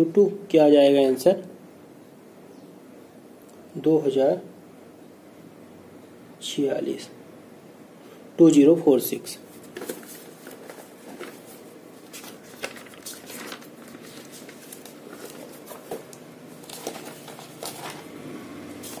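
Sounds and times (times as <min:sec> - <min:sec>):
paper rustling: 0:09.5 - 0:19.0.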